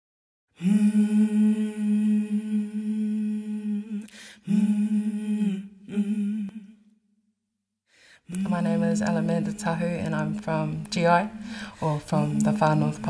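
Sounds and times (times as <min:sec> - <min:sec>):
short breath: 0:04.0 - 0:04.5, 0:07.9 - 0:08.3, 0:11.4 - 0:11.8.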